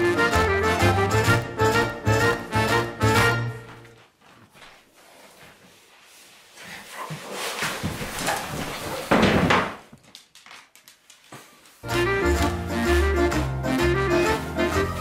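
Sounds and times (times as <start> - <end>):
scuffling footsteps: 2.1 - 9.1
chair crashing over: 8.1 - 9.9.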